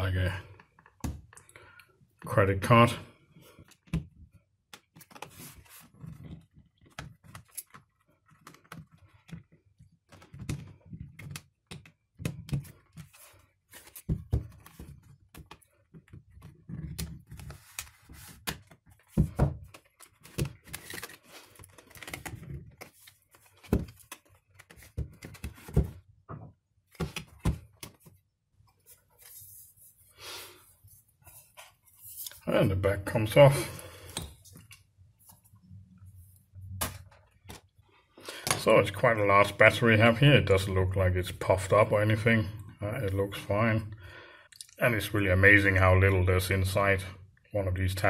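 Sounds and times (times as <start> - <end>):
tablet case handling: 3.7 - 26.1.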